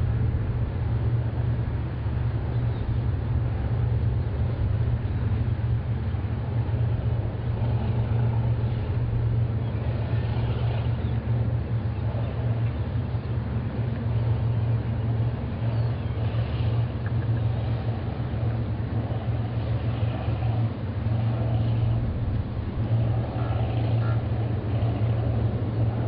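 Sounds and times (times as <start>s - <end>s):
ship low rumble: 0.0s - 26.0s.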